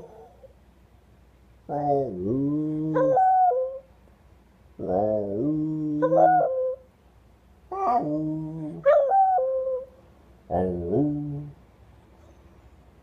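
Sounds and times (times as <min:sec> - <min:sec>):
dog howling: 0:01.7 - 0:03.8, 0:04.8 - 0:06.8, 0:07.7 - 0:09.9.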